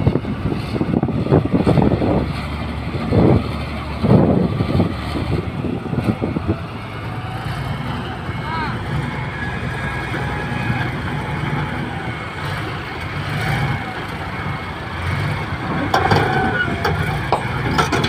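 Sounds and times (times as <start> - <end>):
bulldozer diesel engine running: 0.0 - 18.0
steel tracks clattering: 15.0 - 18.0.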